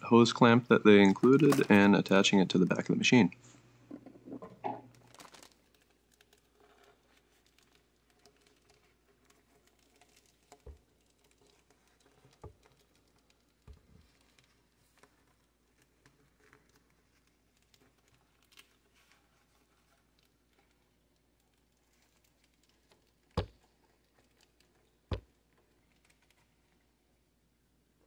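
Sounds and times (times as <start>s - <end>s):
plastic wrapping crinkle: 1.0s - 2.8s, 3.6s - 26.9s.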